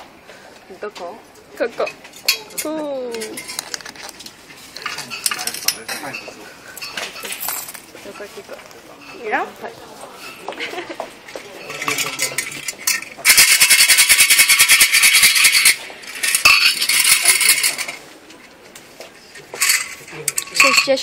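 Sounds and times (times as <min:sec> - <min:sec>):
wooden sticks rattling in canister: 0:11.6 - 0:18.0.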